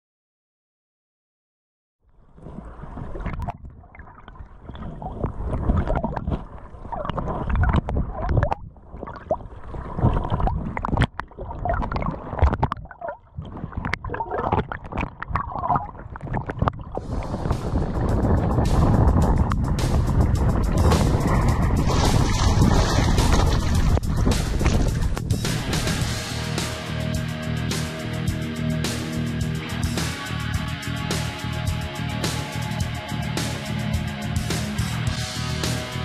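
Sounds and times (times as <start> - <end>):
water gurgling underwater: 2.2 - 25.3
hiss of air and wind: 17.0 - 25.8.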